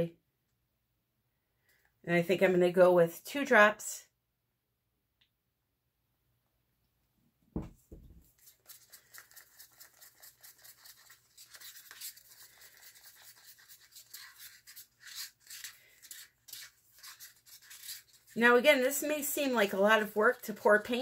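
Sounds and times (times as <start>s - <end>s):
stick stirring thick paint: 7.8s - 20.9s.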